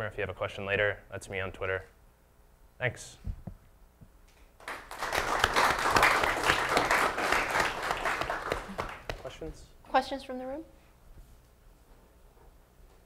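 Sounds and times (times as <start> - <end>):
audience applauding: 4.6 - 9.4.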